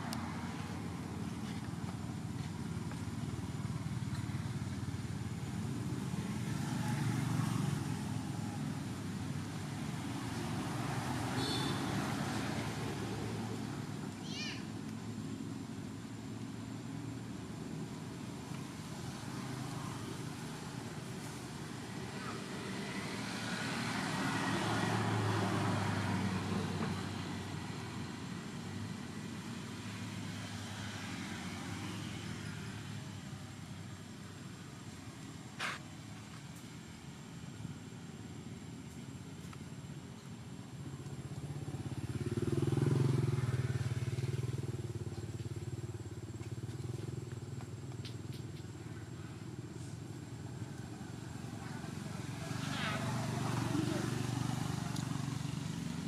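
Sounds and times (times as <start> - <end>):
vehicle engine passing by: 0.0 - 14.2, 17.6 - 38.8, 40.4 - 56.0
traffic rumble: 0.0 - 56.0.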